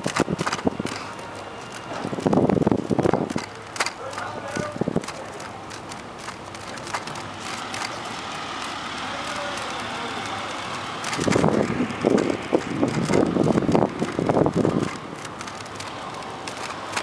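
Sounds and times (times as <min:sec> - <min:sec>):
wind buffeting on microphone: 0:00.0 - 0:05.4, 0:10.6 - 0:17.0
bicycle rolling noise: 0:00.0 - 0:17.0.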